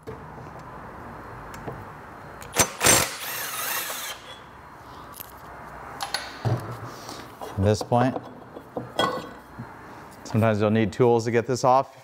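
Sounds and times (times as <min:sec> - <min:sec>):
low workshop noise: 0:00.0 - 0:12.0
power tool running: 0:02.5 - 0:04.4.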